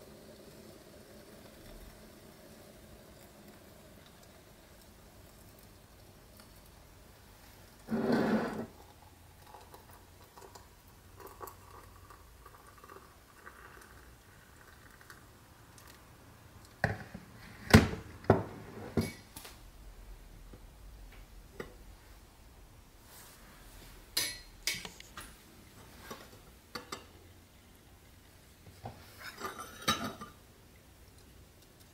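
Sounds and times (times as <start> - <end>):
hot water trickling into mug: 0.0 - 16.9
loud scrape: 7.9 - 8.7.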